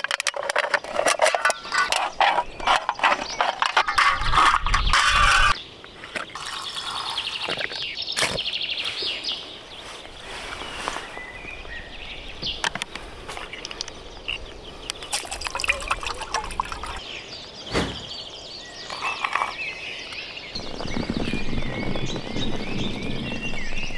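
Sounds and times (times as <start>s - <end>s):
aluminium can pieces clicking: 0.0s - 5.6s
birds singing: 0.4s - 23.9s
liquid being poured: 6.4s - 7.8s, 15.0s - 17.0s.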